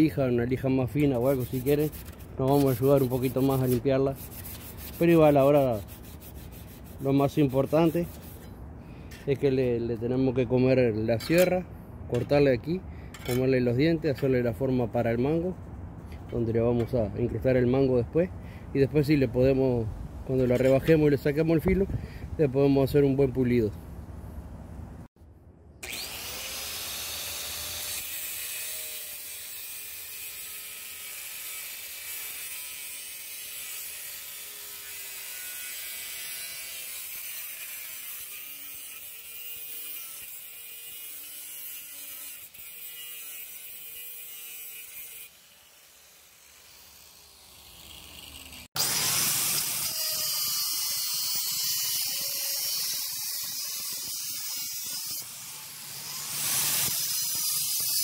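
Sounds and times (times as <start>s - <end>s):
electric grinder grinding steel: 25.8s - 58.0s.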